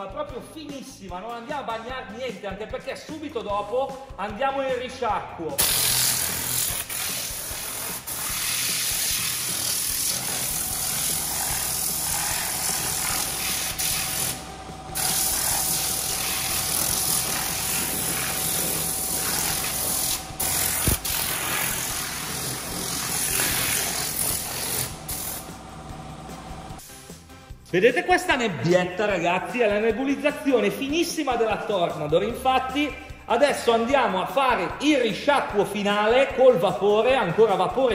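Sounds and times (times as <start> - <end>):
air cleaning gun hissing: 5.6 - 27.1.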